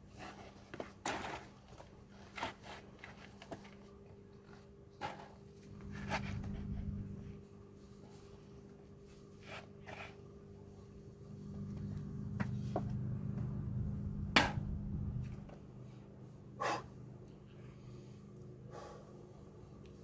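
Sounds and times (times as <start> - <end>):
steady low hum: 1.8 - 20.0
sharp knock: 14.4 - 14.6
man breathing hard: 16.6 - 17.0, 17.6 - 19.5.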